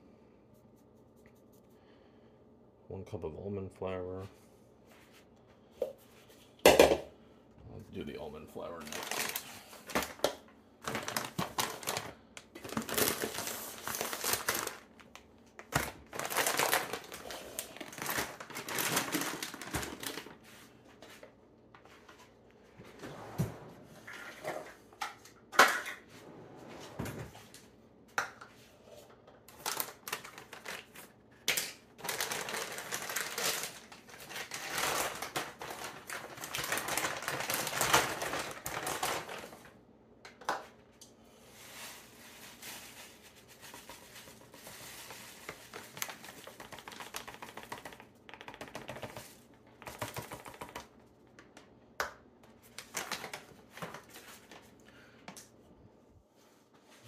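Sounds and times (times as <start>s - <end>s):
plastic packaging crinkling: 8.6s - 20.4s, 29.5s - 39.8s, 41.7s - 51.0s, 52.6s - 54.8s.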